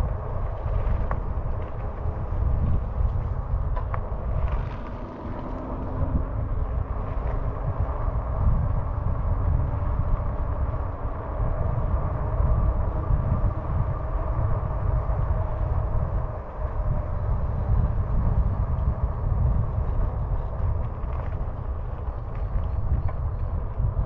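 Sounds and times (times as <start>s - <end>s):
tyres rolling on trail: 0.0s - 24.0s
wind rumble on microphone: 0.0s - 24.0s.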